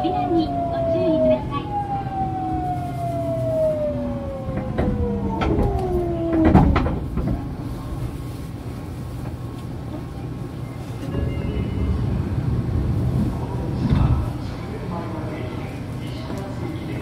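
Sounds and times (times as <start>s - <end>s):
low running rumble: 0.0s - 9.5s, 11.2s - 15.8s
train motor whine falling: 1.7s - 7.4s
train clunks: 4.1s - 10.2s
loud knock: 4.5s - 7.4s.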